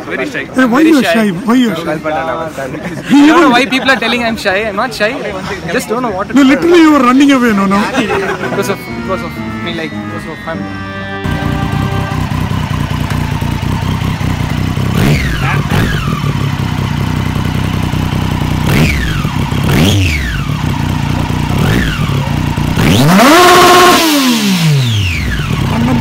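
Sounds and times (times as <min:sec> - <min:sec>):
motorcycle engine revving: 0:06.6 - 0:26.0.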